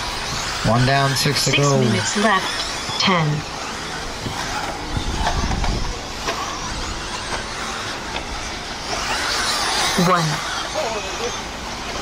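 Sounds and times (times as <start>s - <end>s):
small motors whining: 0.0s - 12.0s
tyres on dirt: 0.0s - 12.0s.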